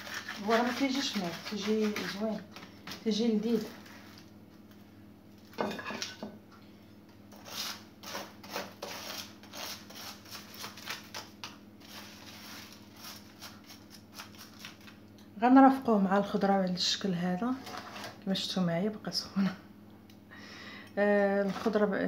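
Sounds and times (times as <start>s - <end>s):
salt crust scraped on metal tray: 0.0s - 2.4s, 7.3s - 11.0s
steady low hum: 0.0s - 22.0s.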